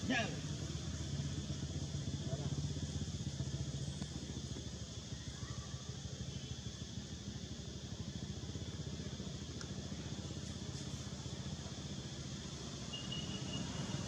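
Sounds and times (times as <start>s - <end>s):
engine idling drone: 0.0s - 14.0s
faint ticks: 9.6s - 9.8s.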